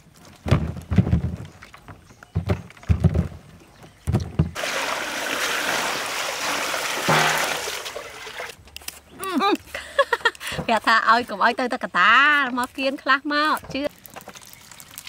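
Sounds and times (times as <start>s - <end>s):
water poured splashing: 4.6s - 8.6s, 14.2s - 15.0s.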